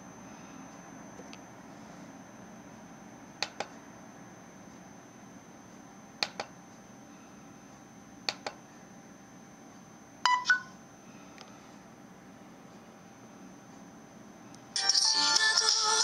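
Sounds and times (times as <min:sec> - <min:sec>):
short electronic beeps: 0:10.2 - 0:10.8.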